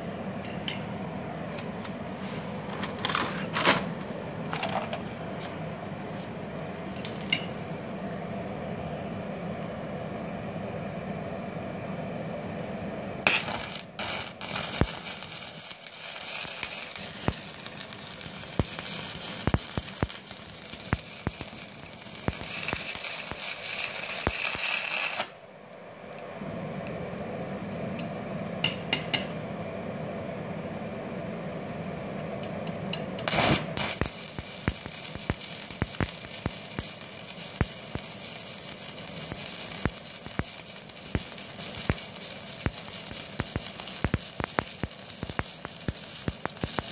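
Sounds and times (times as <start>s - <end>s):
welding arc crackling: 13.2s - 25.4s, 33.2s - 46.9s.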